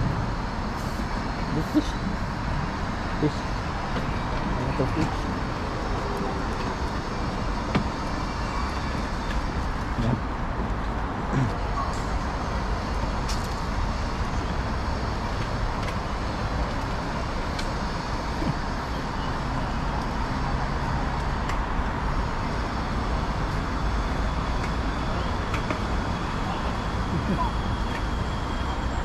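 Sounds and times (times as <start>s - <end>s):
city traffic rumble: 0.0s - 29.0s.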